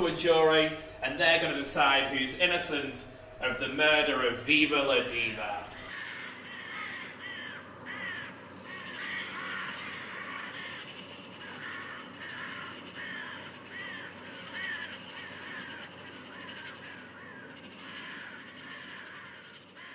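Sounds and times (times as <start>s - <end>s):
steady background hiss: 0.0s - 19.8s
crows cawing: 5.5s - 19.9s.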